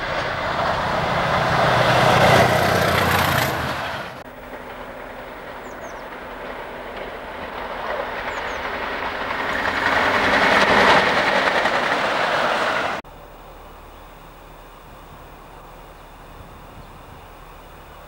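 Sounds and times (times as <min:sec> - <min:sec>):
wheels on rails: 0:00.0 - 0:13.0
diesel locomotives passing: 0:00.0 - 0:18.0.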